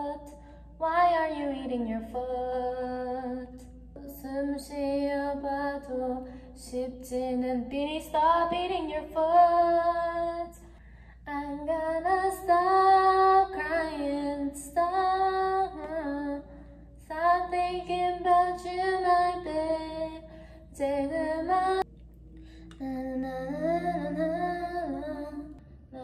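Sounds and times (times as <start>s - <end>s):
woman singing into microphone: 17.1s - 21.9s, 22.8s - 26.0s.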